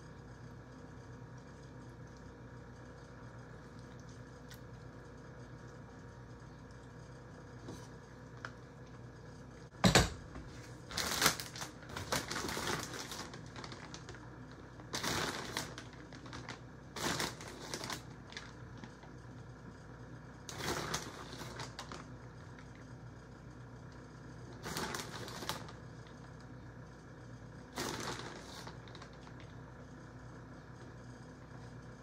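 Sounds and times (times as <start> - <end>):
plastic bag crinkling: 10.7 - 19.1, 20.5 - 22.8, 24.5 - 26.4, 27.7 - 29.6.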